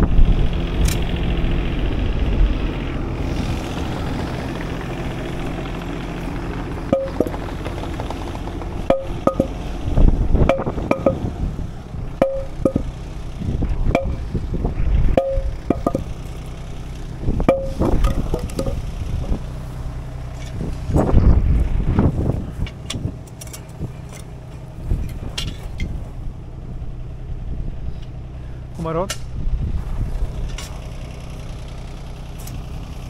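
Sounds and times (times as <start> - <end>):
engine running: 0.0 - 33.0
ringing clinks and knocks: 6.9 - 7.3, 8.9 - 9.6, 10.5 - 11.2, 12.2 - 12.9, 15.2 - 16.1, 17.5 - 18.8.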